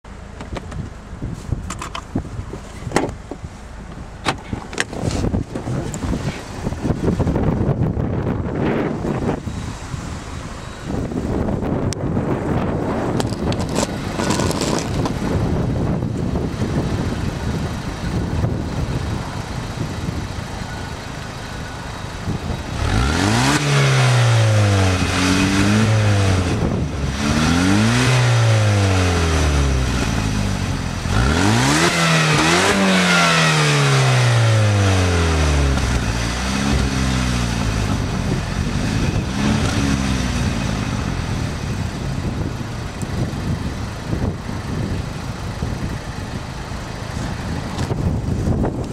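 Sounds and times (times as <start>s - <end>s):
car engine revving: 22.3s - 41.7s.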